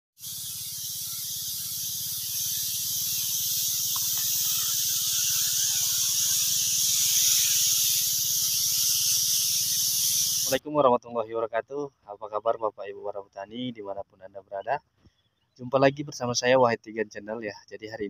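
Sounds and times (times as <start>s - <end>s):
pump engine hum: 0.2s - 10.6s
spray hissing from nozzles: 0.2s - 10.6s.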